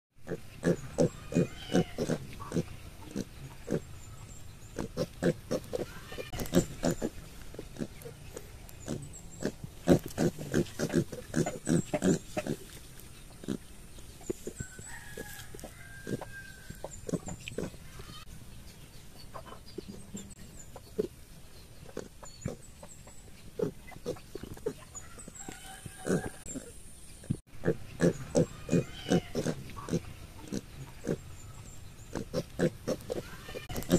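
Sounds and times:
piglets grunting: 0.2s - 3.9s, 4.7s - 12.7s, 23.6s - 25.0s, 27.6s - 31.3s, 32.1s - 33.9s.

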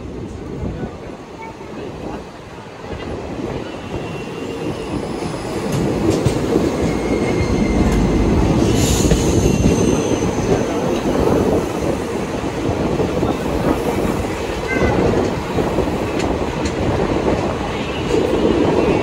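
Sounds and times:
train wheels rumbling on rails: 0.0s - 19.0s
rail-joint clicks: 5.6s - 8.2s, 16.0s - 18.2s
high wheel squeals: 6.7s - 10.7s.

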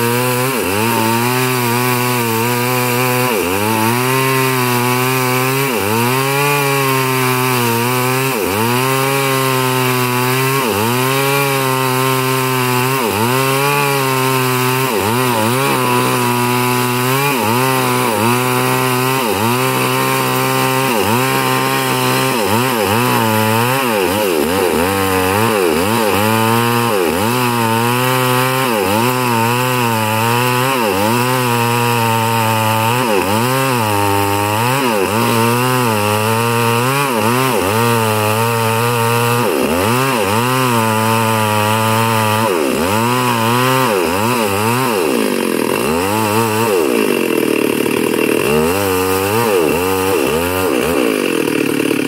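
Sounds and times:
chainsaw cutting through log: 0.0s - 52.0s.

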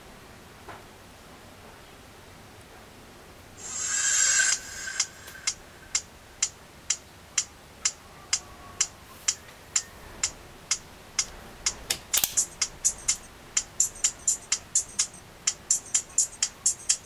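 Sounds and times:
music on phone loudspeaker: 12.1s - 17.0s.

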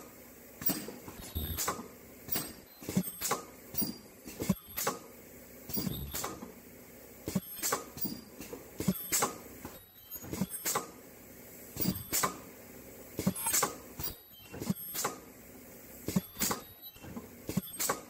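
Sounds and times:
welding machine sharp clacks: 0.6s - 5.1s, 5.7s - 6.5s, 11.8s - 12.5s.

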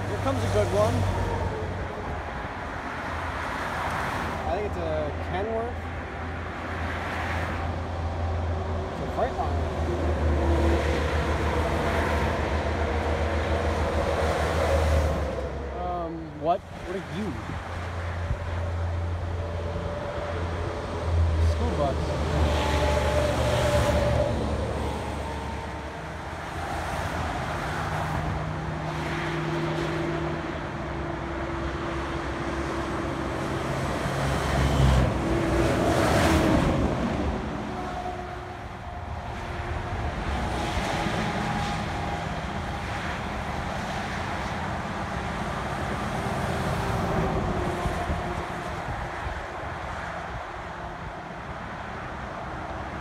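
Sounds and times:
vehicles passing on highway: 0.0s - 53.0s.

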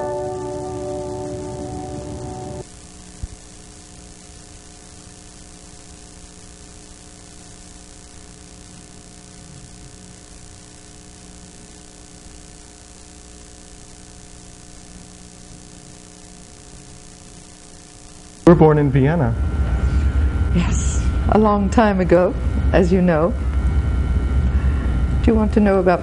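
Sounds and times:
videotape hiss: 0.0s - 19.2s
faint steady tones: 0.0s - 26.0s
low mains hum: 0.0s - 26.0s.

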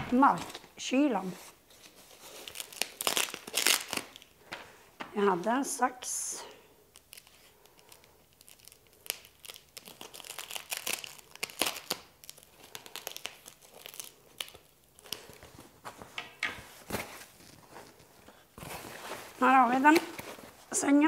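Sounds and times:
paper tearing and crumpling: 7.0s - 15.4s.

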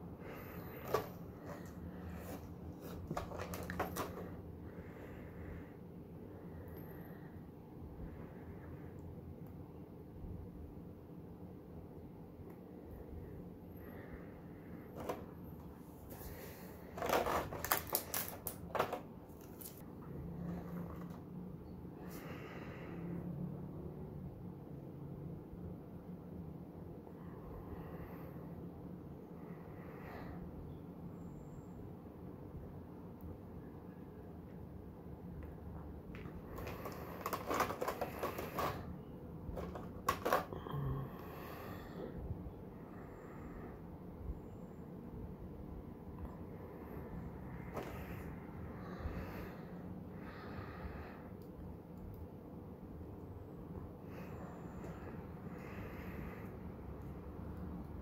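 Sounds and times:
steady low hum: 0.0s - 58.0s
plastic packaging crinkling: 0.8s - 4.2s, 16.9s - 19.8s, 36.2s - 38.8s, 39.5s - 40.5s
plastic parts clicking and rattling: 0.8s - 4.3s, 16.9s - 19.8s, 36.2s - 38.8s, 39.5s - 40.6s
sharp plastic crackles: 0.8s - 4.4s, 16.1s - 19.8s, 36.1s - 38.9s, 39.5s - 40.6s.

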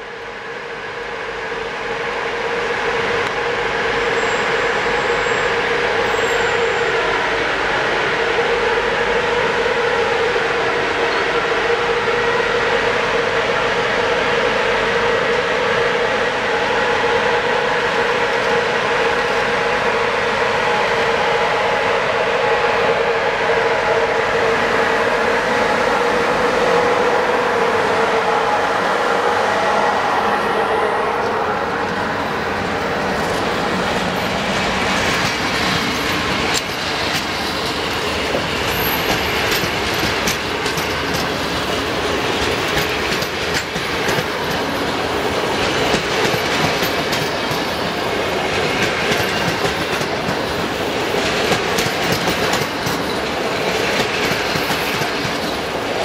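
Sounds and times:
electric locomotive humming: 0.0s - 56.0s
train wheels clicking over rail joints: 33.2s - 56.0s.

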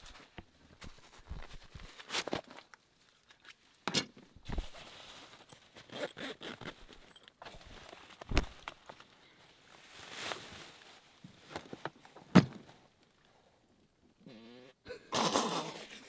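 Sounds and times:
fabric rustling: 4.4s - 5.9s, 6.5s - 12.1s.

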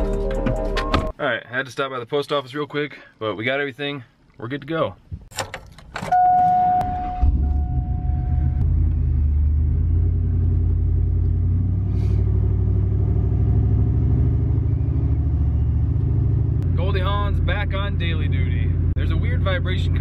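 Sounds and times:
truck engine starting and running: 5.3s - 20.0s
steady beep tone: 6.1s - 8.6s.

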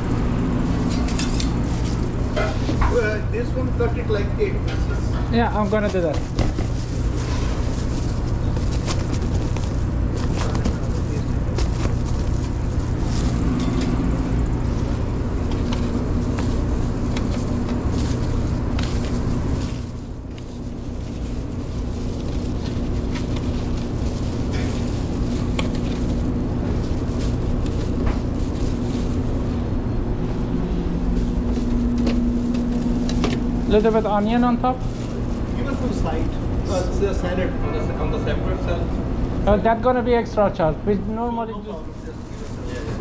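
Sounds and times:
low hum of kitchen machinery: 0.0s - 43.0s
food packed into foil tray: 5.3s - 29.7s.

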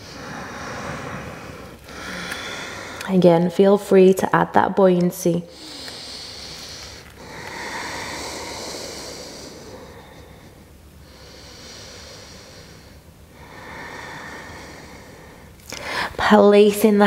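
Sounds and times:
woman breathing slowly: 0.0s - 3.1s, 5.5s - 16.2s.

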